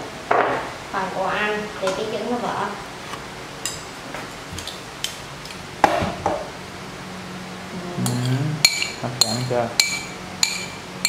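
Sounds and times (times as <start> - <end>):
ceramic bowls and spoon clinking: 8.0 - 10.9.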